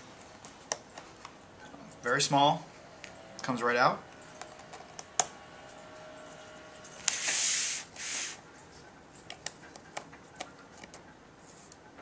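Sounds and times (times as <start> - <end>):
short hissing scrapes: 7.0 - 8.4.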